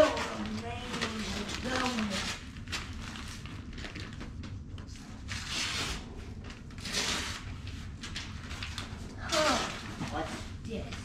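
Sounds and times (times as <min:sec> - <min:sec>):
rustling and handling noises: 0:00.0 - 0:11.0.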